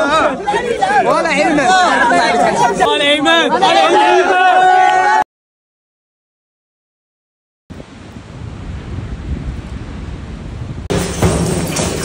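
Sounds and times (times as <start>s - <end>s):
wind and surf rumbling: 7.7s - 12.0s.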